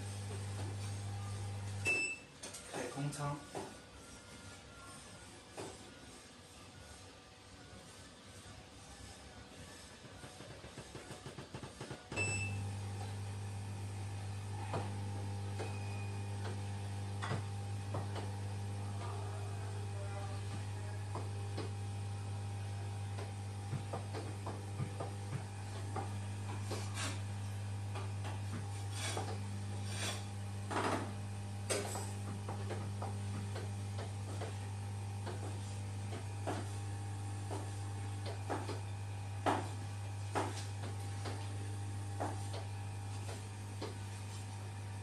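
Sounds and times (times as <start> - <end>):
massage chair humming: 0.0 - 3.7, 10.2 - 45.0.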